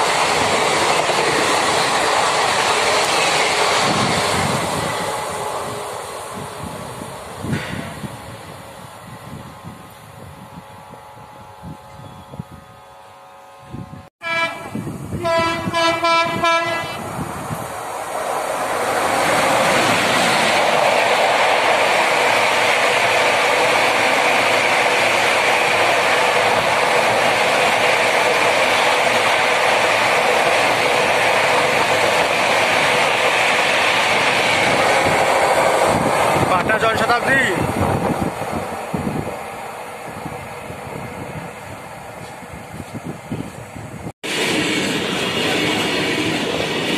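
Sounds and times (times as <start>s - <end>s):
train wheels rushing on rail: 0.0s - 12.5s, 13.7s - 46.9s
train horn blast: 10.8s - 17.1s.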